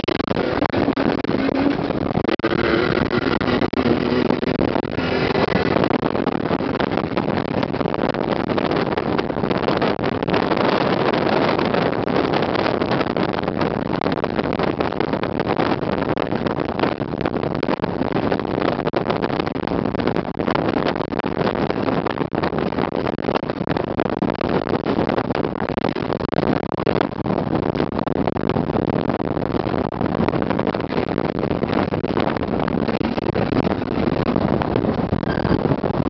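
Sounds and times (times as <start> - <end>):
truck engine running hard: 0.0 - 8.0.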